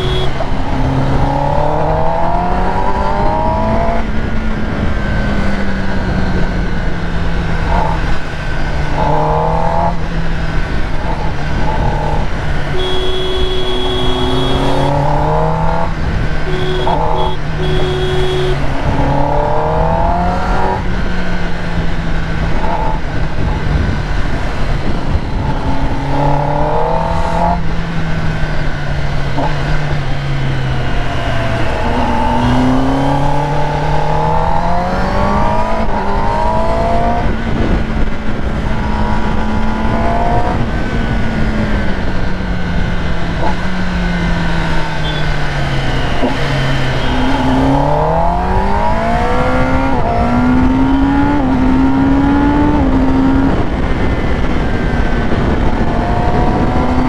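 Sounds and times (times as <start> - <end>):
motorcycle engine running: 0.0 - 1.8, 9.9 - 20.0, 37.2 - 47.8.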